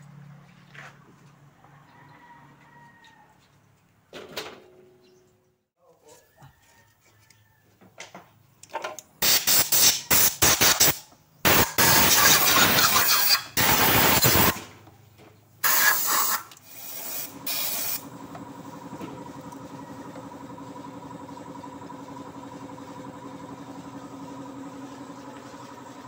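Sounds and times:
pressurised spray hissing: 15.6 - 18.0.

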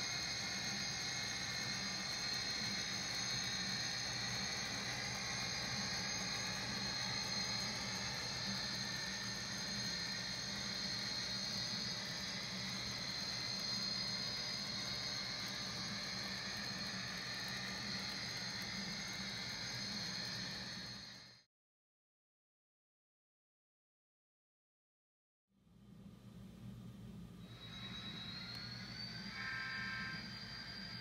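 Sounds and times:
model train whirring: 0.0 - 21.4, 27.4 - 31.0
wheels squealing on rails: 27.4 - 31.0.

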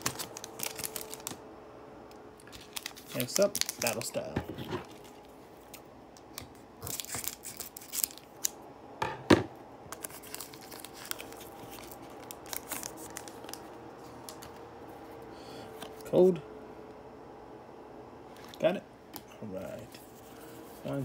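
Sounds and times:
cards rustling: 0.0 - 1.4, 2.4 - 8.6, 9.9 - 15.1
foil wrapper crinkling and tearing: 0.0 - 1.4, 2.4 - 8.6, 9.9 - 14.5.

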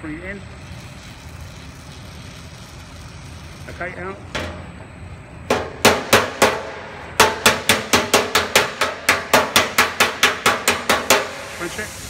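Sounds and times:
hammer striking metal panel: 5.5 - 11.4.

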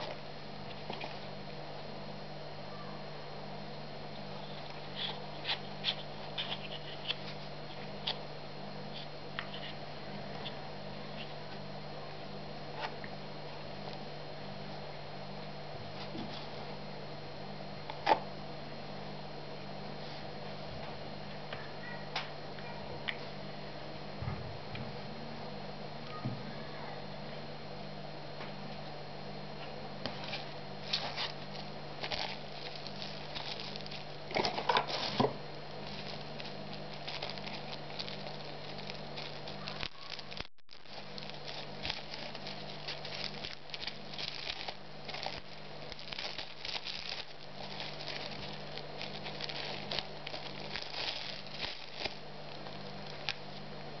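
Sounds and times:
plastic bag crinkling: 30.2 - 53.6.

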